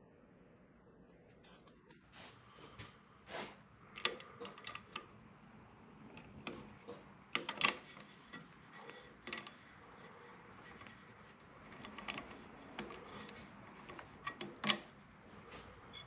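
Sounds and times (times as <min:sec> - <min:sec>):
small tools clicking and tapping: 0:03.9 - 0:05.1, 0:06.2 - 0:15.0.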